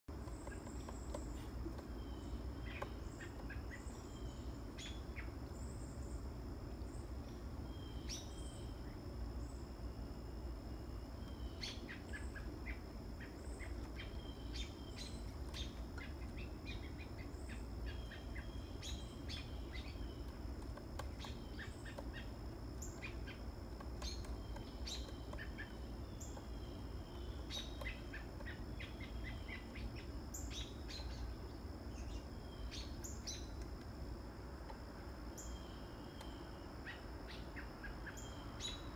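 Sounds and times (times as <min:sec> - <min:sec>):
birds chirping: 0:00.1 - 0:38.9
high insect drone: 0:00.2 - 0:38.9
woodpecker knocking on wood: 0:20.2 - 0:26.5.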